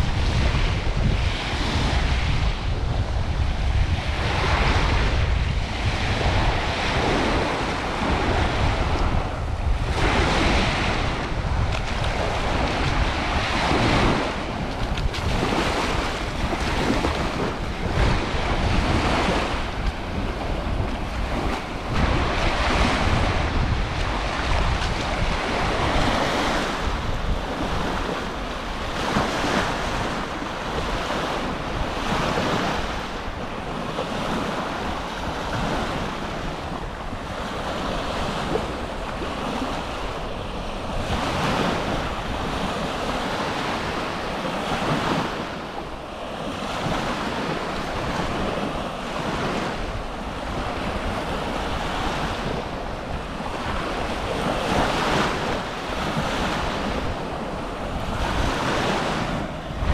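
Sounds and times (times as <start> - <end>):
small waves breaking on beach: 0.0 - 59.9
wind rumbling on microphone: 0.0 - 59.9.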